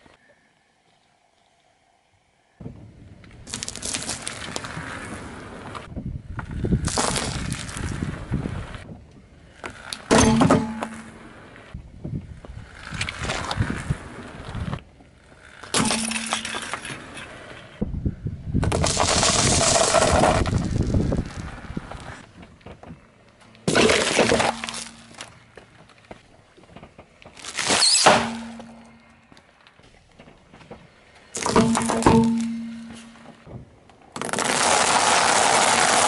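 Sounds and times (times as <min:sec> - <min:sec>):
tyre crushing objects crunching: 0:23.6 - 0:25.3, 0:27.2 - 0:28.8.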